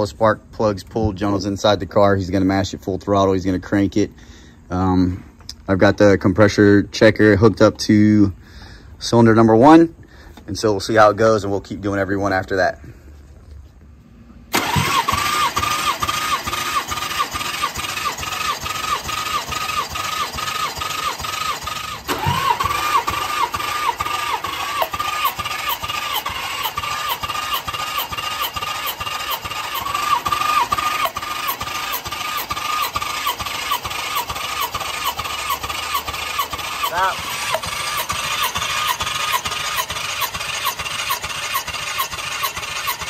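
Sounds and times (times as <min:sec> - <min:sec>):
starter motor cranking engine: 0:14.4 - 0:43.0.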